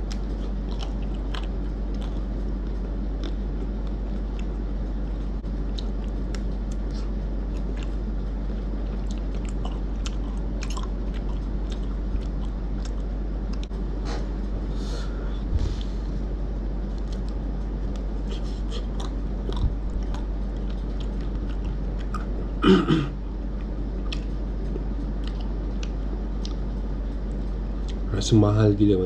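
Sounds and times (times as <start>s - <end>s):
ice cream bar crunching: 0.0s - 13.7s
steady low hum: 0.0s - 29.0s.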